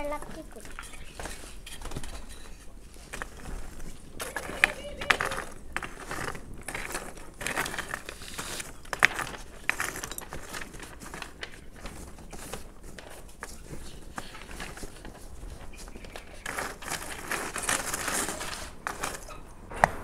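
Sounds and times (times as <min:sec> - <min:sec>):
charcoal fire crackling: 0:00.0 - 0:20.0
stick poking burning coals: 0:00.0 - 0:20.0
sharp knock: 0:19.7 - 0:20.0.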